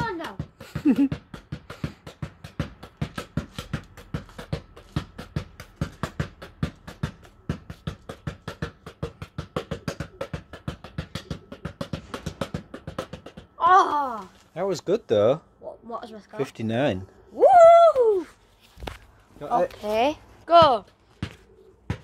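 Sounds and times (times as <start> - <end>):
ball bouncing on tarmac: 0.0 - 13.9, 18.8 - 22.0.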